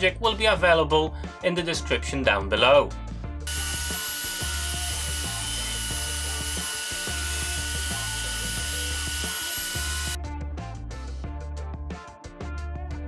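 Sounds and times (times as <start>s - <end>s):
background music with beat: 0.0s - 13.0s
table saw cutting wood: 3.5s - 10.2s.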